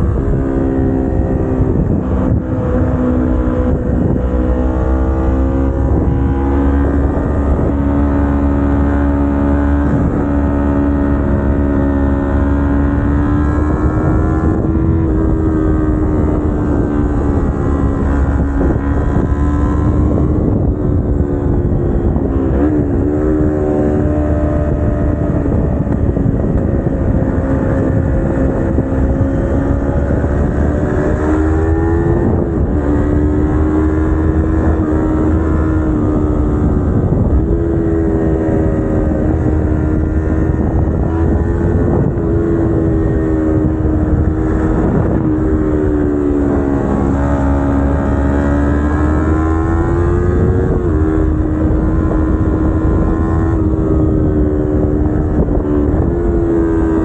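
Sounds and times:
motorcycle engine while riding: 0.0s - 57.0s.

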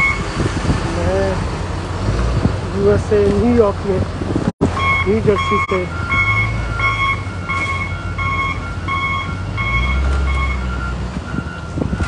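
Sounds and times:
two-tone backup alarm beeping: 0.0s - 0.2s, 4.8s - 12.0s
low engine rumble: 0.0s - 12.0s.

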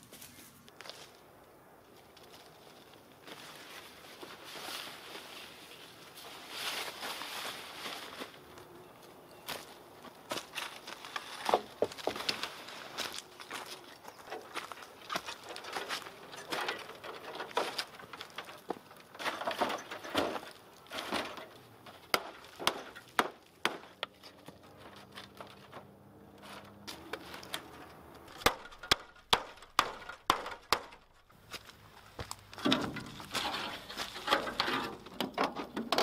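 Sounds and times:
rustling: 10.3s - 36.0s.

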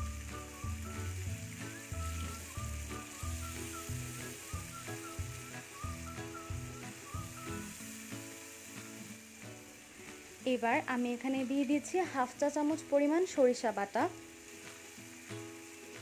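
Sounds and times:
rhythmic background music: 0.0s - 11.5s
paste sizzling in oil: 0.0s - 16.0s.

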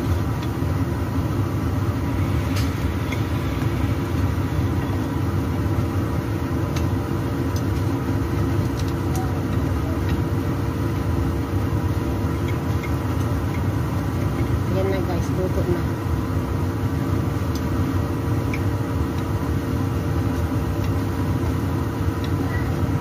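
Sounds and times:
kitchen extractor fan humming: 0.0s - 23.0s.

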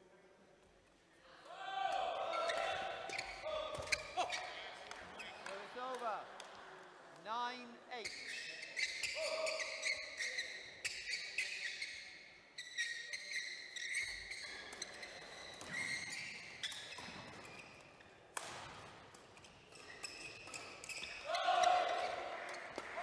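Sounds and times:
shoes squeaking on floor: 2.2s - 5.6s, 8.0s - 18.2s, 19.3s - 22.7s.

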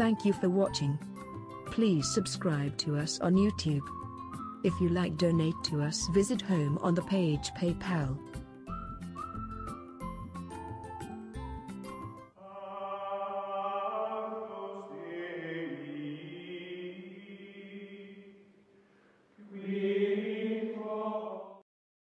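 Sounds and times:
choir-like held chords: 12.4s - 18.4s, 19.4s - 21.6s.

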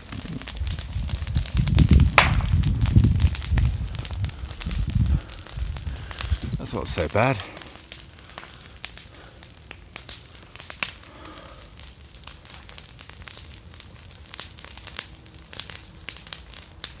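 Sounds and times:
bonfire crackling and popping: 0.0s - 17.0s.

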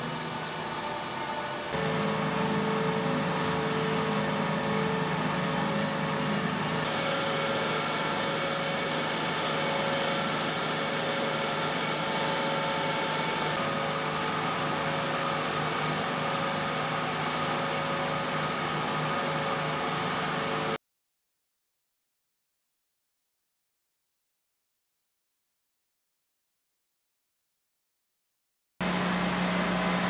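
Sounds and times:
lathe whirring and whining: 0.0s - 20.8s, 28.8s - 30.0s.

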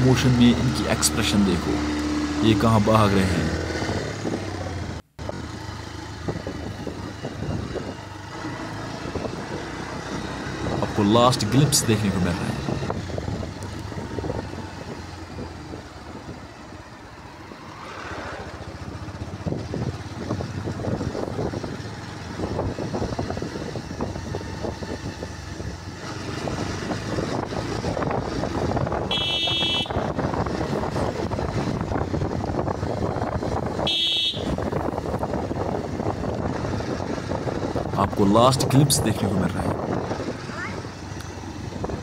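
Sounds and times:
motorcycle engine and road noise: 0.0s - 42.0s
horn toots: 29.0s - 30.2s, 33.8s - 34.7s.

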